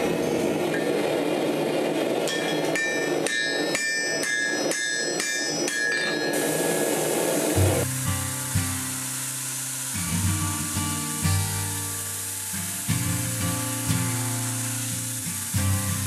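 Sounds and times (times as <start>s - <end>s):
hammer ringing on anvil: 2.3s - 7.9s.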